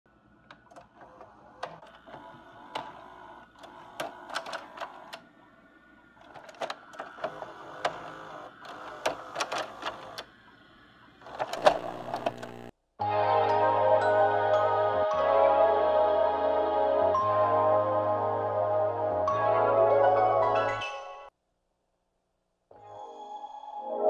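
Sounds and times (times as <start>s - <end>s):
tape mechanism clicks and clunks: 0.4s - 5.3s, 6.2s - 10.4s, 11.2s - 12.7s
tape player motor whirring: 0.5s - 5.3s, 6.0s - 12.7s.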